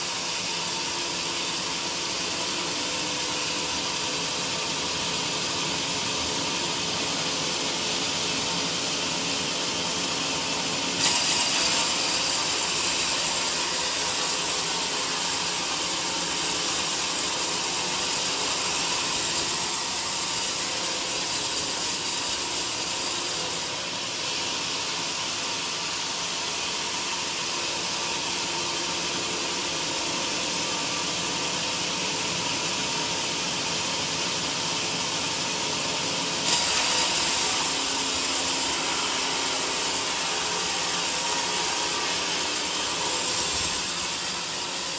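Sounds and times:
band saw cutting wood: 0:10.6 - 0:24.0, 0:36.4 - 0:44.9.

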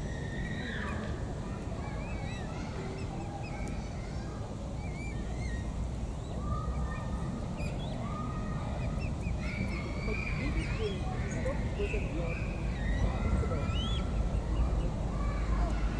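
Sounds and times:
cygnets peeping: 0:01.8 - 0:03.9, 0:04.8 - 0:15.0.

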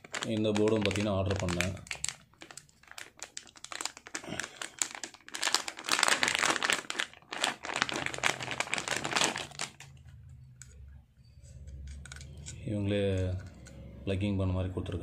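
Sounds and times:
plastic bag crinkling: 0:00.0 - 0:10.3.

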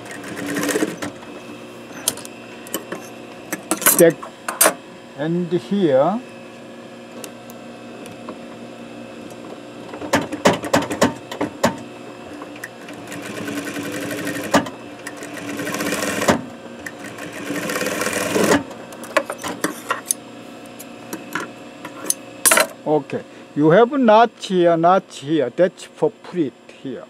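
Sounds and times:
sewing machine stitching: 0:00.0 - 0:01.2, 0:12.8 - 0:18.7.

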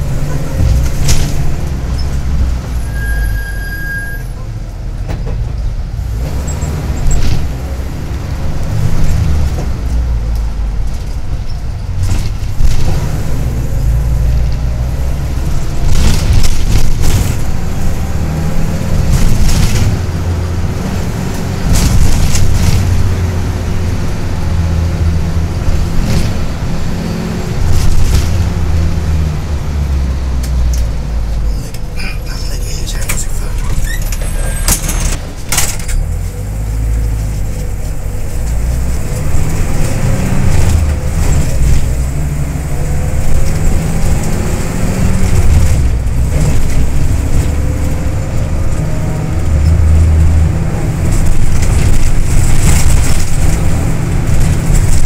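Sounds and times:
bus engine and road noise: 0:00.0 - 0:55.0.

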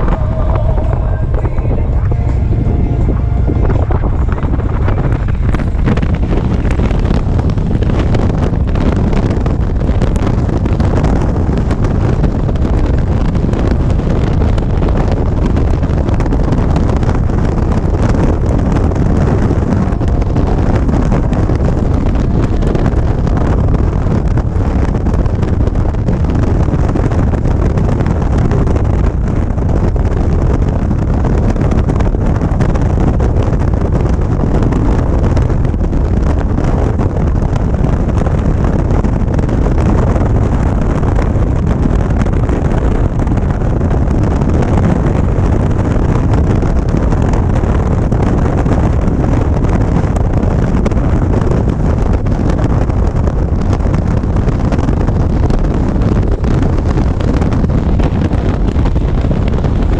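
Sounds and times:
motorcycle engine running: 0:00.0 - 0:59.9
wind rushing over microphone: 0:00.0 - 0:59.9.

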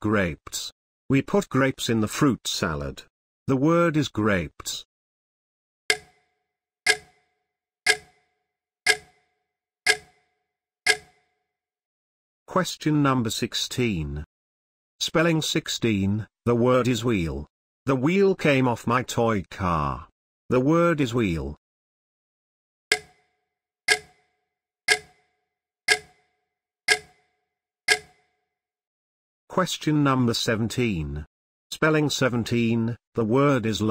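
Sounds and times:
clock ticking: 0:05.9 - 0:06.2, 0:06.9 - 0:07.2, 0:07.9 - 0:08.2, 0:08.9 - 0:09.2, 0:09.9 - 0:10.2, 0:10.9 - 0:11.2, 0:22.9 - 0:23.2, 0:23.9 - 0:24.2, 0:24.9 - 0:25.2, 0:25.9 - 0:26.2, 0:26.9 - 0:27.2, 0:27.9 - 0:28.2.

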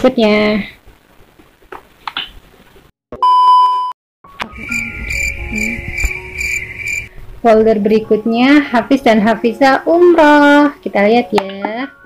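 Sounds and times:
loud electronic beep: 0:03.2 - 0:07.1
trilling electronic menu music: 0:04.4 - 0:07.1.

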